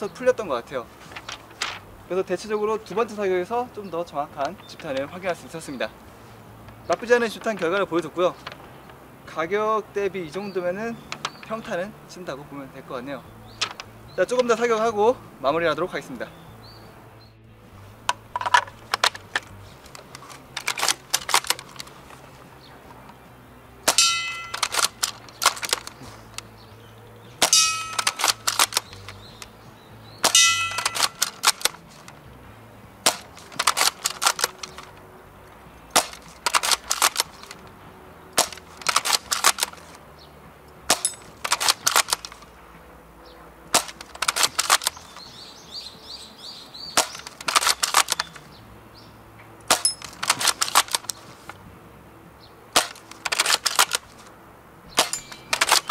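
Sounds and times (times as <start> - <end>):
airsoft rifle shots: 23.8 - 26.1, 27.4 - 29.5, 30.2 - 31.9, 33.0 - 34.9, 35.9 - 37.6, 38.4 - 40.0, 40.9 - 42.4, 43.7 - 45.2, 47.0 - 48.4, 49.7 - 51.2, 52.7 - 54.1, 54.9 - 55.9.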